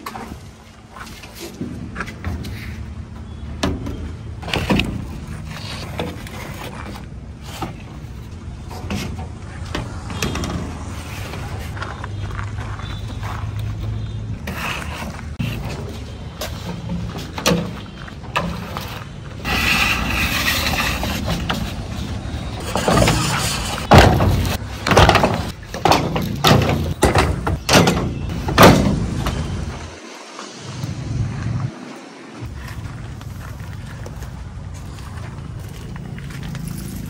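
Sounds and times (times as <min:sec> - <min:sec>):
plastic pipes scraping over metal: 0:14.4 - 0:28.8
pipes knocking and clattering: 0:22.6 - 0:29.4.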